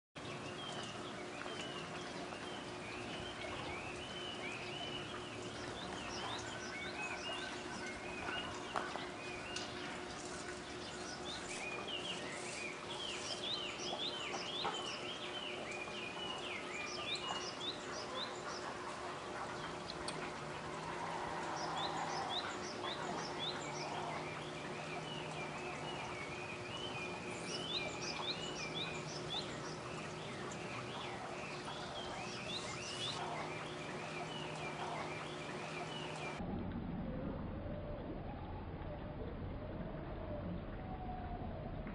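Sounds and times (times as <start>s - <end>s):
faint steady hum: 0.2s - 41.9s
high chirping calls: 21.5s - 36.4s.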